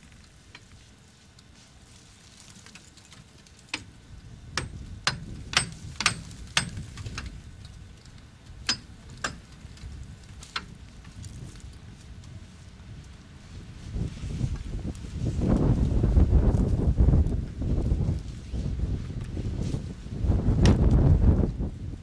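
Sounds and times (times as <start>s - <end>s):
sharp knocks: 4.6s - 7.3s.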